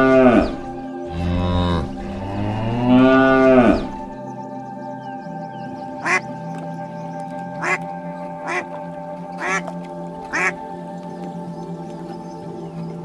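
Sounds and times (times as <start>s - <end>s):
ambient music with drone: 0.0s - 13.0s
duck quacking: 9.4s - 9.6s, 10.3s - 10.5s.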